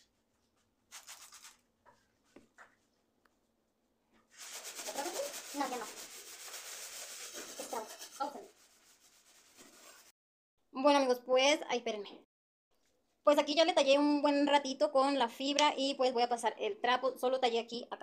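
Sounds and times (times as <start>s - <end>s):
scouring pad scrubbing stove top: 4.3s - 10.2s.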